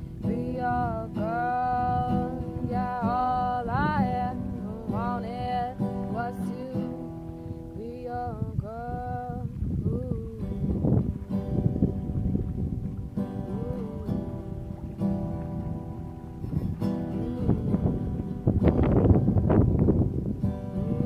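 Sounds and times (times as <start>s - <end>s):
acoustic guitar strummed: 0.0s - 21.0s
person singing: 0.2s - 7.1s, 7.7s - 10.7s, 13.4s - 14.6s, 17.0s - 18.2s, 20.6s - 21.0s.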